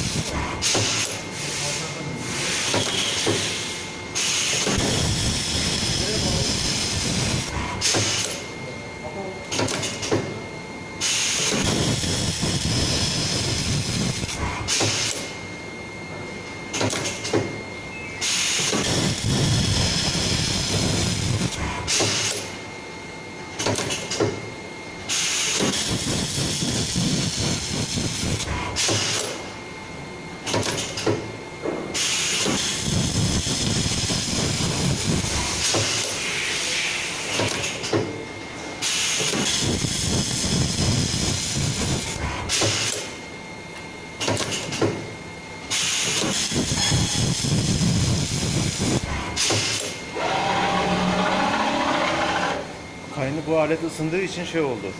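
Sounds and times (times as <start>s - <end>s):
welding machine hissing and crackling: 0.0s - 8.6s, 11.0s - 15.5s, 18.2s - 22.7s, 25.0s - 29.6s, 30.4s - 54.8s
faint high whine: 17.6s - 18.4s.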